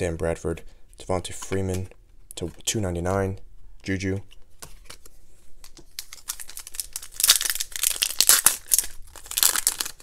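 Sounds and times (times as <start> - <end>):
wrapper tearing and crinkling: 5.9 - 10.0.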